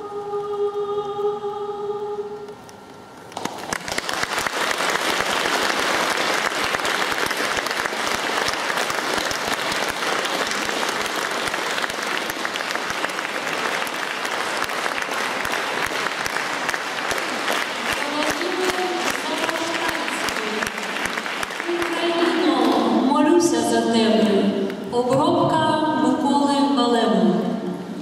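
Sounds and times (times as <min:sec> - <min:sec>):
audience applauding: 0:03.3 - 0:23.0.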